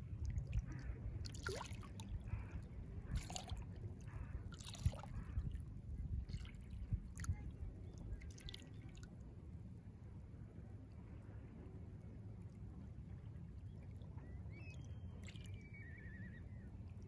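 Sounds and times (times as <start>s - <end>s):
low steady rumble: 0.0s - 17.0s
small waves lapping: 0.3s - 5.6s.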